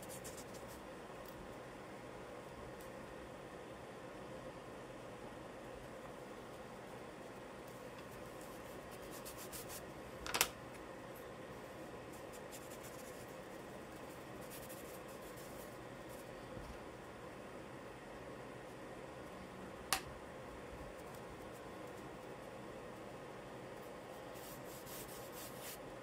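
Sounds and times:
charcoal scratching on paper: 0.0 - 0.8, 8.2 - 9.9, 12.1 - 16.3, 24.2 - 25.8
faint steady hiss: 0.0 - 26.0.

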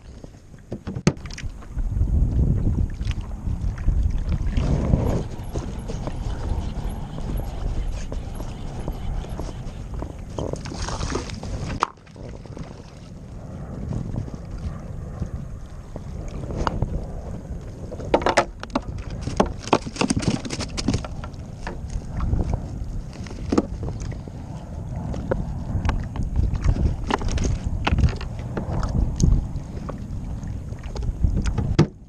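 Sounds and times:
water sounds: 0.0 - 32.0
wind buffeting microphone: 0.0 - 32.0
knocks and rattles in plastic cooler: 18.2 - 21.1.

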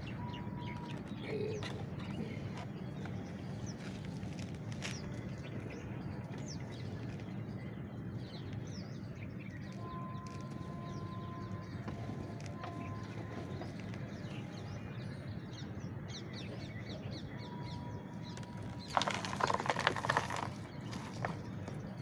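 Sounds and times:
small birds chirping: 0.0 - 22.0
crackling rustling handling noise: 0.8 - 5.8, 9.6 - 14.7, 18.2 - 22.0.

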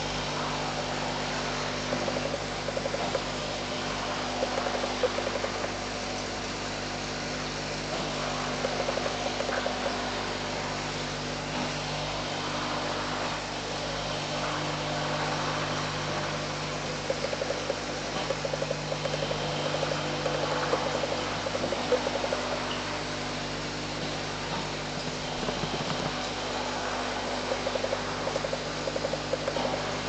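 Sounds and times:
machine hum with low drone: 0.0 - 30.0
light fast rattling: 25.1 - 29.7.

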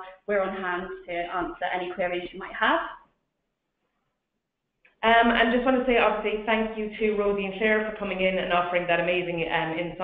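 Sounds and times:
person speaking: 5.0 - 9.2.

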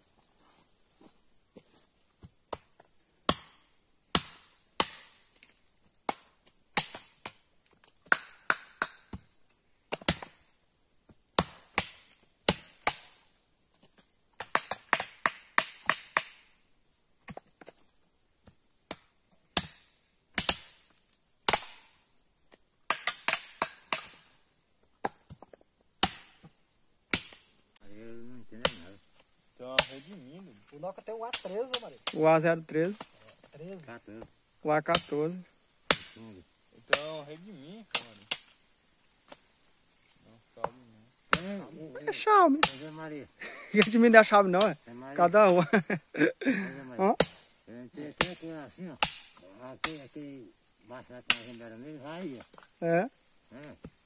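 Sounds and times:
insects droning: 0.0 - 54.0
machete chopping nut pods: 3.3 - 5.2, 6.0 - 9.3, 9.9 - 10.4, 11.4 - 13.2, 14.4 - 16.4, 18.9 - 21.9, 22.9 - 24.3, 26.0 - 26.5, 27.1 - 27.5, 29.8 - 30.1, 31.3 - 32.2, 35.8 - 36.2, 36.9 - 37.2, 37.9 - 38.6, 40.6 - 41.7, 42.5 - 42.9, 43.8 - 44.8, 47.2 - 50.0, 51.3 - 51.6.

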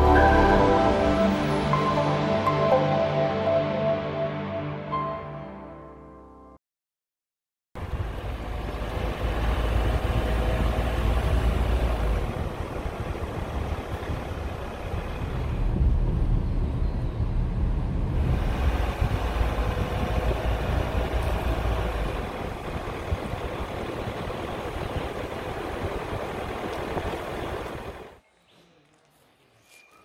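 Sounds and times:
car engine and tyre rumble: 7.8 - 28.2.

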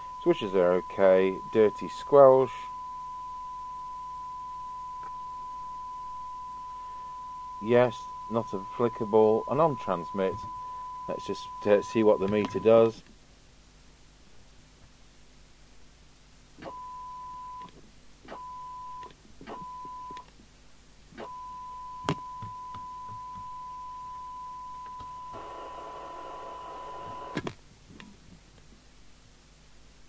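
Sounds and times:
radio test tone: 0.0 - 12.9.

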